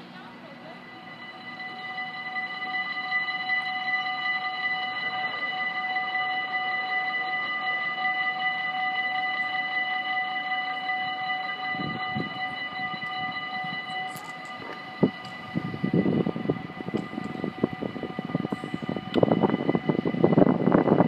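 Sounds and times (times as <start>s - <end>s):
level crossing warning bell: 0.0s - 21.0s
low rumble: 11.8s - 21.0s.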